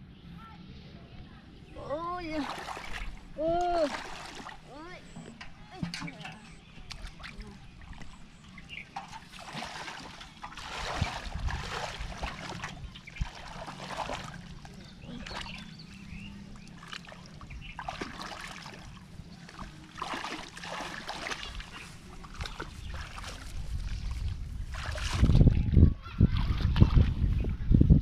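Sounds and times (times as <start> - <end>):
hands splashing in muddy water: 2.4 - 4.6, 9.0 - 15.8, 16.6 - 25.6.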